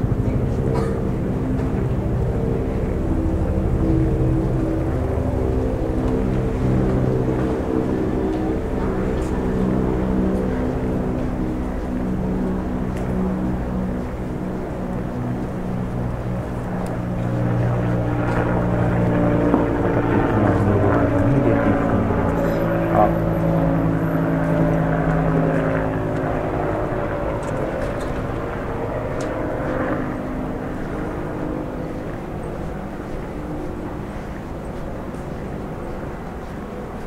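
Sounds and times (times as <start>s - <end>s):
droning engine passing by: 0.0s - 37.0s.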